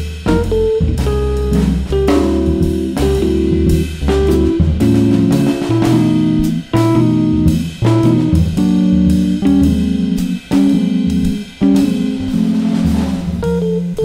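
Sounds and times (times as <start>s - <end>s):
guitar and bass music with beat: 0.0s - 14.0s.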